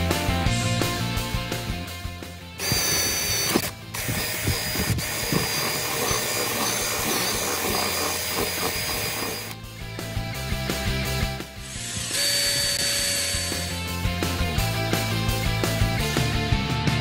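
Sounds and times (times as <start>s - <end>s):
cordless drill boring through wood: 2.6s - 9.6s, 11.6s - 13.8s.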